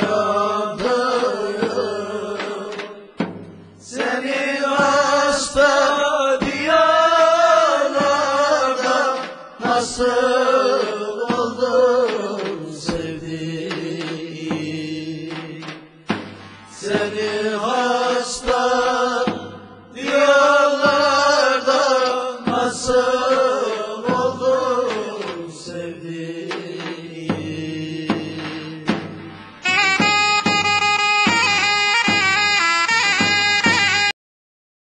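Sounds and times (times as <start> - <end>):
person singing: 0.0 - 3.0, 3.9 - 15.7, 16.7 - 19.4
loud held chord: 29.6 - 33.8.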